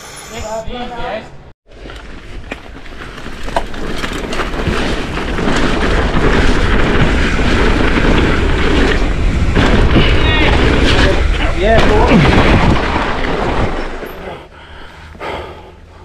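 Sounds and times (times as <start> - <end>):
tyres running on dirt trail: 1.7 - 16.0
bike clicks and knocks: 1.8 - 10.1
wind rushing over microphone: 4.4 - 14.0.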